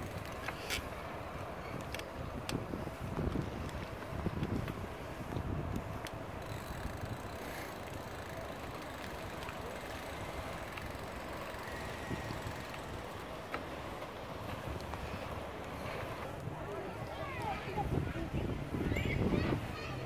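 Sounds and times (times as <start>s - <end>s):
wind rumble on microphone: 0.0s - 7.7s, 14.3s - 20.0s
rolling bicycle tyres: 0.0s - 20.0s
small clicks and rattles: 5.7s - 13.7s.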